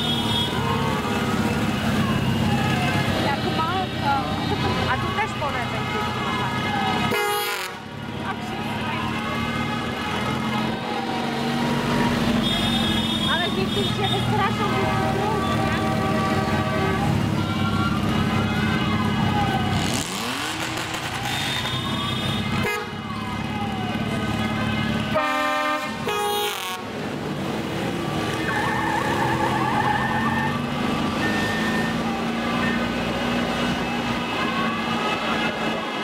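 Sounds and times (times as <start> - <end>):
horns sounding: 0.0 - 23.3, 24.4 - 27.1
motorcycle engines running: 0.0 - 36.0
siren wailing: 0.2 - 13.5, 14.4 - 25.6, 27.8 - 36.0.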